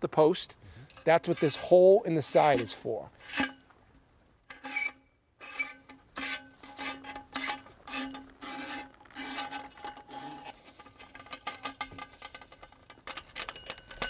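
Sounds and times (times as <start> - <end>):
cable scraping inside metal post: 0.9 - 3.6, 4.5 - 14.0.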